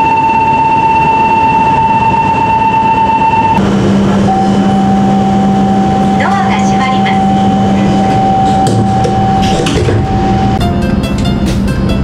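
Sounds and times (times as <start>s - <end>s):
electronic warning tone: 0.0s - 10.6s
train door sliding shut: 7.8s - 11.7s.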